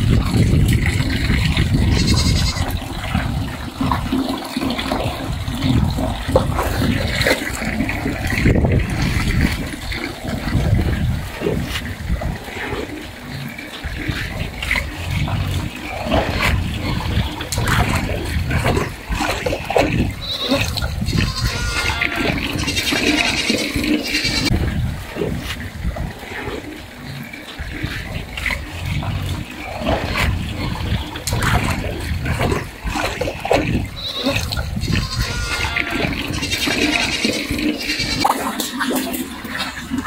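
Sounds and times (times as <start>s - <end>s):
pigs chewing and crunching: 0.0s - 40.0s
pigs grunting: 0.0s - 40.0s
pigs squealing: 1.6s - 3.0s, 12.5s - 25.6s, 26.2s - 40.0s.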